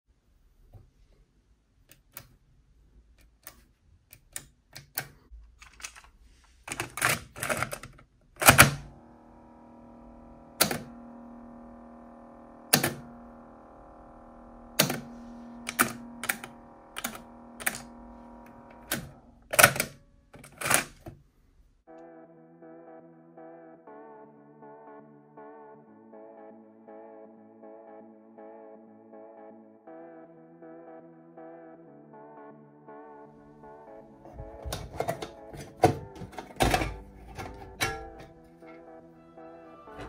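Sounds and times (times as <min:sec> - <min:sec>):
sharp mechanical clicks and clunks: 0:06.7 - 0:09.2, 0:10.4 - 0:11.7, 0:12.6 - 0:13.4, 0:14.5 - 0:21.2, 0:34.3 - 0:38.4
steady pitched drone: 0:08.9 - 0:20.4.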